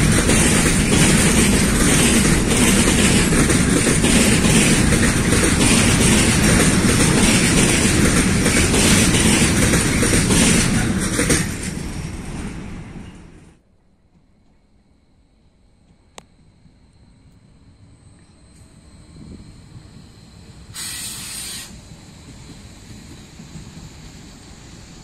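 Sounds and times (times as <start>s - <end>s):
wheels clattering on rails: 0.0s - 13.6s
freight train rumbling past: 0.0s - 13.7s, 18.6s - 25.0s.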